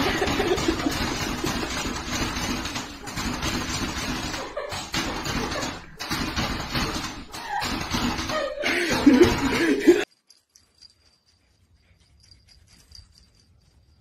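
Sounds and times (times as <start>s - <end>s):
person laughing: 0.0s - 1.8s, 4.2s - 6.0s, 7.3s - 10.1s.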